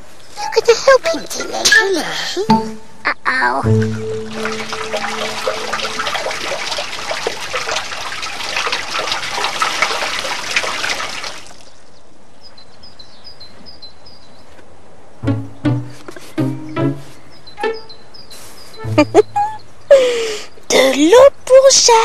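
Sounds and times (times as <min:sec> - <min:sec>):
water pouring into basin: 0:03.7 - 0:11.8
faint birdsong: 0:11.0 - 0:22.0.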